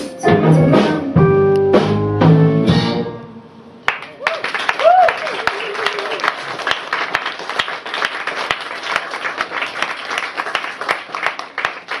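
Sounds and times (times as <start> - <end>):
audience applauding: 3.9 - 12.0.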